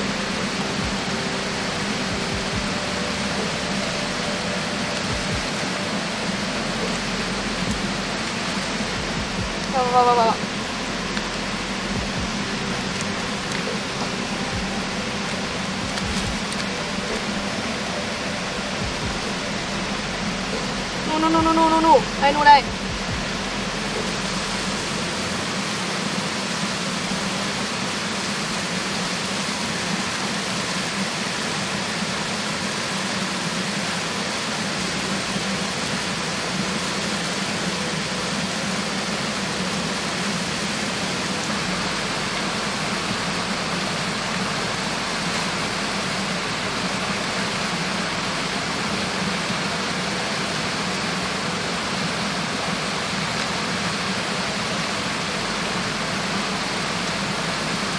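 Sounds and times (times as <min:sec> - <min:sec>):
water rushing: 0:00.0 - 0:57.9.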